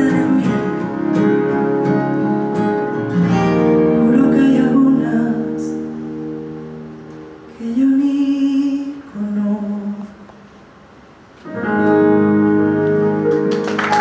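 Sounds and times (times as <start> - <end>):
woman singing: 0.0 - 1.0, 3.8 - 5.8, 7.5 - 10.2
acoustic guitars playing: 0.0 - 8.0, 11.3 - 14.0.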